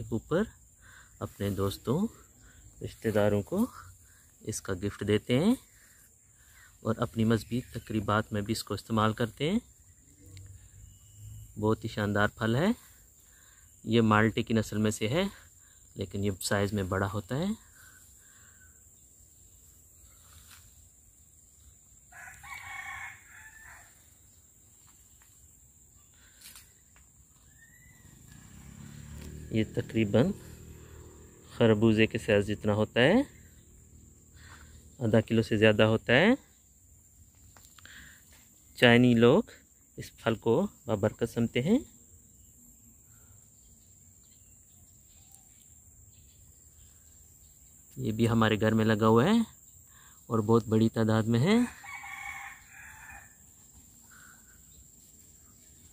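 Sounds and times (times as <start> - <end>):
insects chirring: 0.0 - 55.9
rooster crowing: 22.0 - 24.3, 27.5 - 31.4, 51.6 - 53.7.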